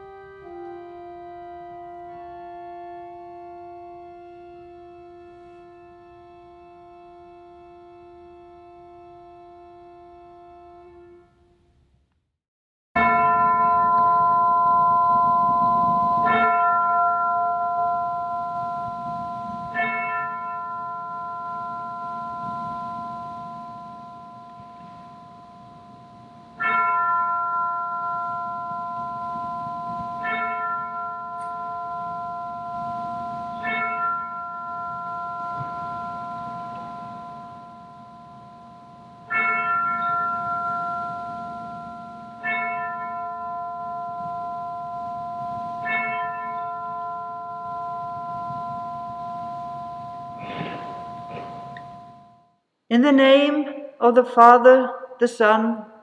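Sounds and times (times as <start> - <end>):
bell ringing: 13.0 - 52.5.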